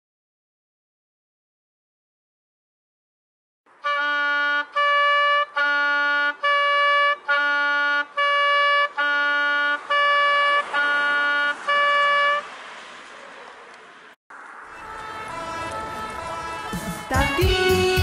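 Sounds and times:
clarinet playing a tune: 3.8s - 12.4s, 14.8s - 18.0s.

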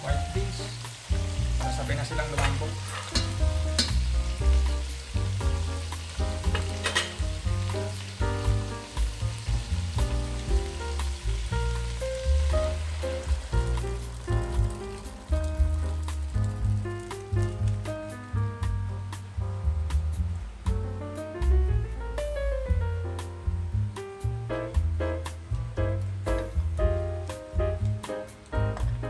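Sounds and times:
meat sizzling in oil: 0.0s - 19.3s
background music: 0.0s - 29.0s
metal ladle scraping a pan: 2.4s - 4.1s, 6.5s - 7.2s.

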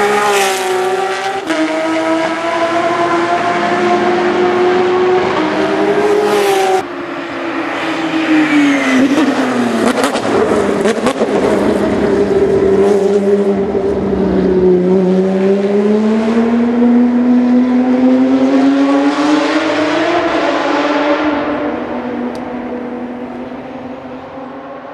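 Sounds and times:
race car engine: 0.0s - 24.9s.

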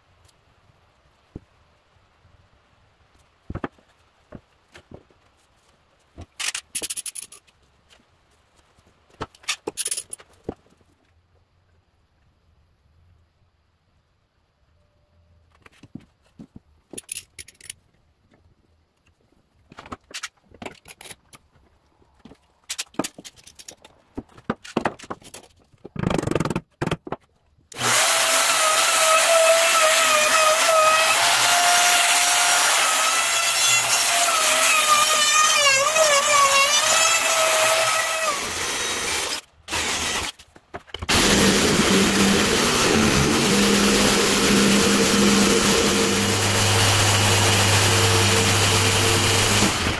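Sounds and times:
jigsaw cutting wood: 27.8s - 40.4s, 41.1s - 49.9s
trim router whining: 41.1s - 49.9s.

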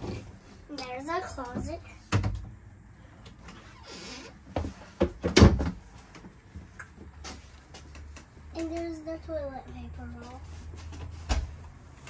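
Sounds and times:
cabinet door knocks and bangs: 5.0s - 5.8s.

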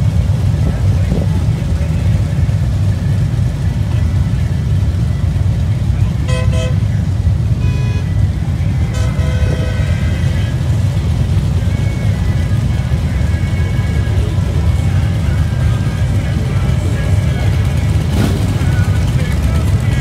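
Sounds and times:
motorcycle engines idling: 0.0s - 20.0s
vehicle horns honking: 6.1s - 10.6s.

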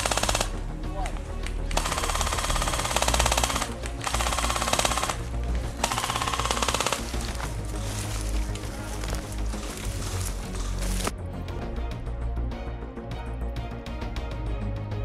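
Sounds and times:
airsoft rifle full auto bursts: 0.0s - 0.5s, 1.7s - 7.3s.

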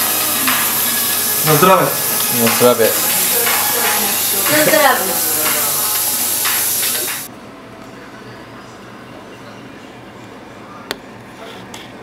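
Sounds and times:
loud steady hiss: 0.0s - 7.3s.

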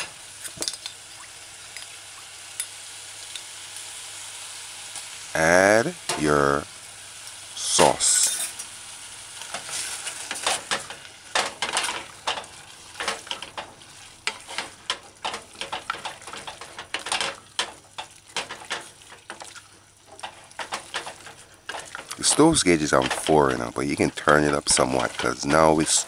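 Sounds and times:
vegetables sizzling: 0.0s - 26.0s
wooden spoon scraping a pan: 8.0s - 8.7s, 9.5s - 26.0s.

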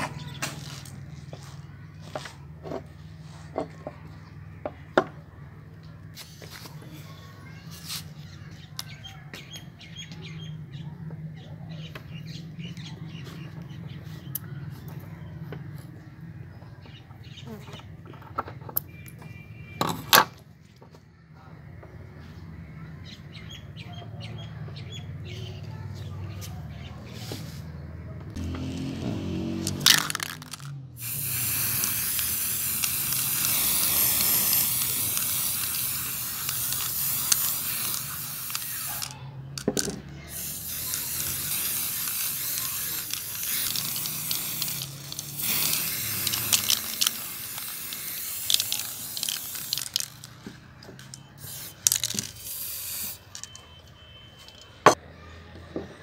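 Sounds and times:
spray paint can hissing: 29.5s - 50.4s, 51.0s - 53.6s.

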